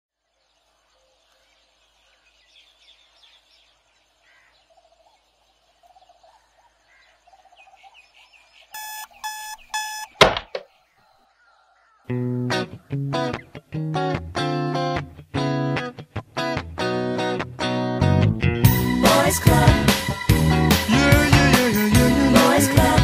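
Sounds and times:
faint bird chirping: 0.1s - 13.6s
alarm clock beeping: 8.8s - 10.2s
fist thudding on alarm clock: 8.8s - 10.7s
small knock: 10.2s - 10.7s.

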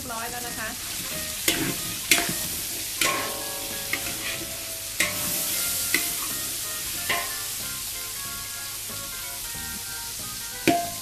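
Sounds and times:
hot oil sizzling in a wok: 0.0s - 11.0s
metal spatula clanking on a wok: 1.0s - 7.7s, 10.7s - 11.0s.

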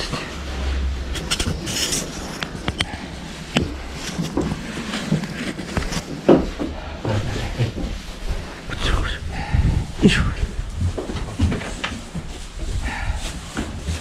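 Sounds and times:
wood clatter: 1.1s - 8.5s.

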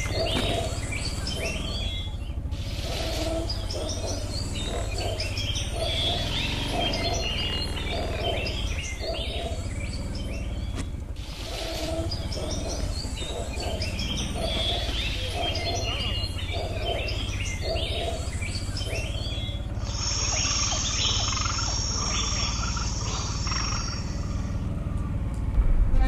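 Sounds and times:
atv engine rumbling: 0.0s - 26.0s
high-pitched whine: 18.3s - 26.0s.

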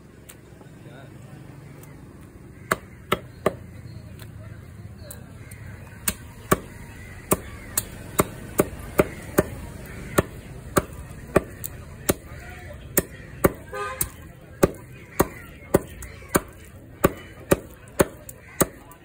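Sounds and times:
cleaver chopping on wooden block: 2.6s - 4.3s, 6.0s - 19.0s.

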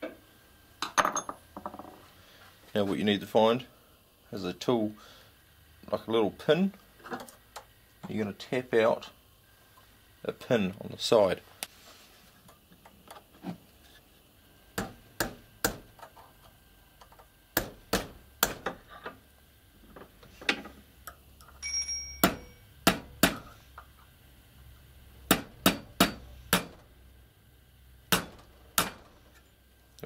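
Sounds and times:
hammer tapping metal punch: 21.6s - 23.5s, 25.3s - 26.8s, 28.1s - 29.4s.

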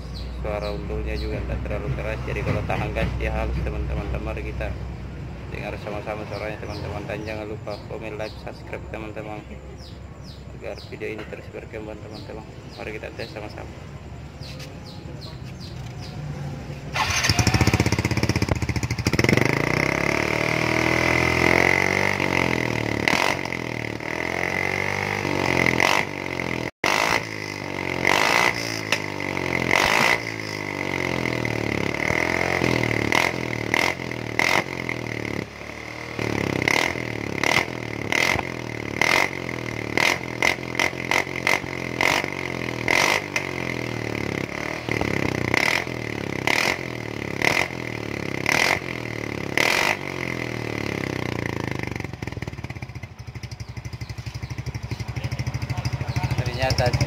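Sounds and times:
scooter engine revving: 15.6s - 57.0s.

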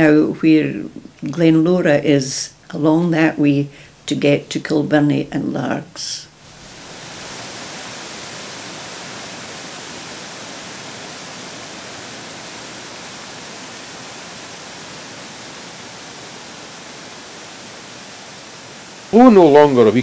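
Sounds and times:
water rushing over rocky falls: 6.4s - 20.0s.

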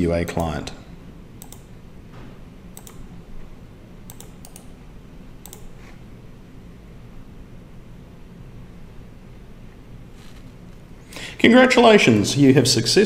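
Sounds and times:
low steady hum: 0.0s - 13.0s
computer mouse clicks: 1.4s - 1.7s, 2.8s - 3.1s, 4.1s - 4.8s, 5.4s - 5.9s.

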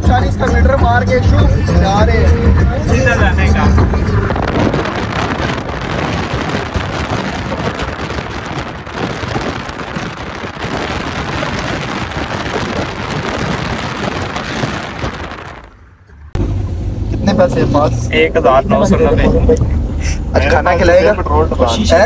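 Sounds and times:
wind buffeting microphone: 2.0s - 16.4s.

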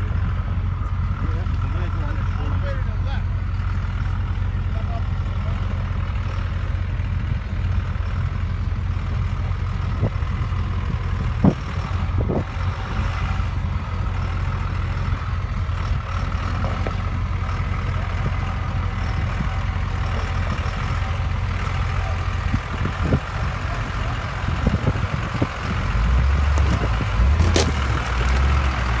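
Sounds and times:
diesel truck engine rumbling: 0.0s - 29.0s.

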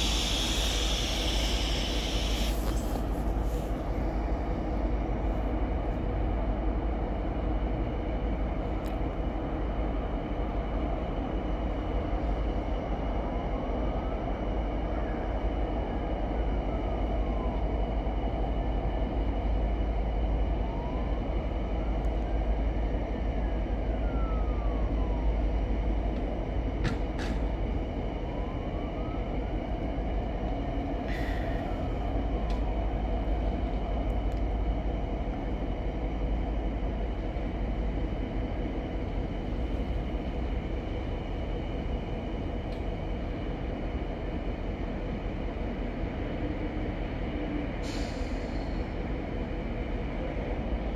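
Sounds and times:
faint whine: 0.0s - 3.3s
train wheels rumbling on rails: 0.0s - 50.9s.

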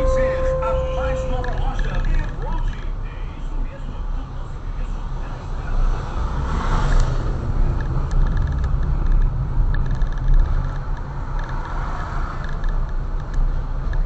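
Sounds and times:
road noise: 0.0s - 14.0s
vehicle engine rumble: 0.0s - 14.0s.

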